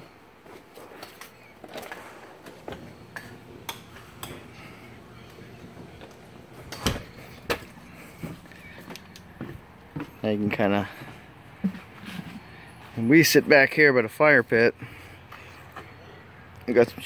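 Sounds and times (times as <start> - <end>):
footsteps on wooden deck: 5.3 - 13.4.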